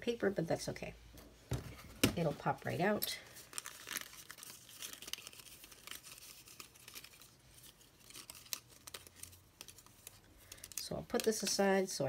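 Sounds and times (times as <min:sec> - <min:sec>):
cardstock rustling and crinkling: 0:01.5 - 0:12.0
small paper clicks: 0:03.6 - 0:11.6.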